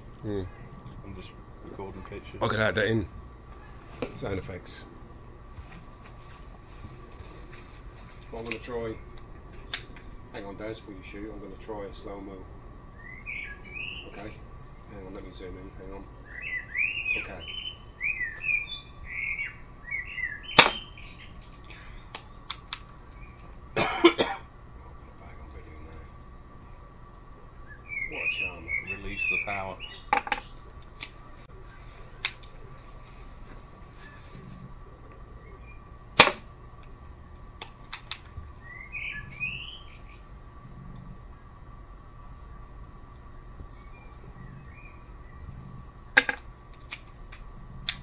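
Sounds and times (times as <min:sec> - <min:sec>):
birds chirping: 0:00.0 - 0:48.0
air pistol crack: 0:20.6 - 0:20.8, 0:36.2 - 0:36.5.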